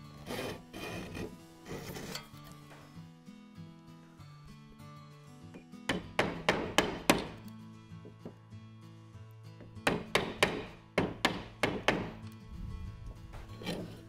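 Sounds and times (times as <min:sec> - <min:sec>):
background music: 0:00.0 - 0:14.0
hammer striking chisel handle: 0:05.9 - 0:07.4, 0:09.8 - 0:12.2.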